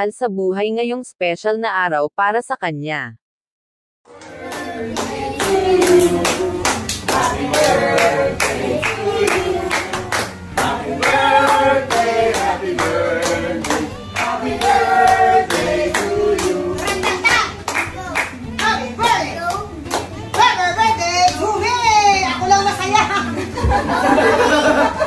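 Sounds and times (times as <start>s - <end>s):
group singing: 4.1s - 17.7s
people clapping: 4.1s - 21.4s.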